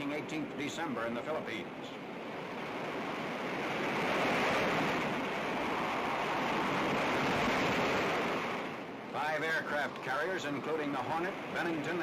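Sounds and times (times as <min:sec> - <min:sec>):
heavy waves breaking: 0:00.0 - 0:12.0
high wind: 0:00.0 - 0:12.0.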